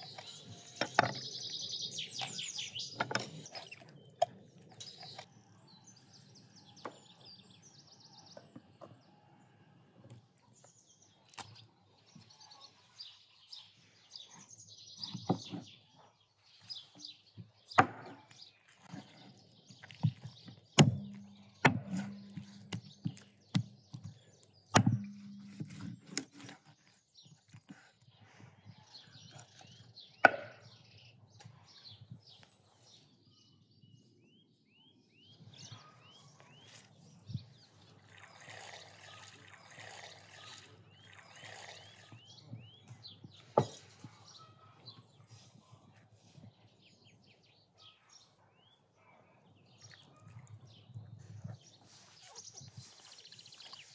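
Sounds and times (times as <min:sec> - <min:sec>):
small birds chirping: 0:00.0 - 0:53.9
knife chopping on wooden board: 0:17.8 - 0:19.2, 0:19.8 - 0:24.1, 0:24.8 - 0:26.7, 0:30.2 - 0:30.6.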